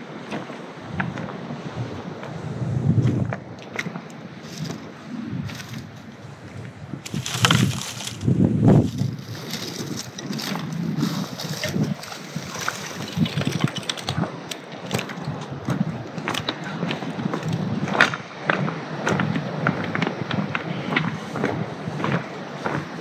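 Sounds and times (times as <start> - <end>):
footsteps crunching on pebbles: 7.0 - 18.2.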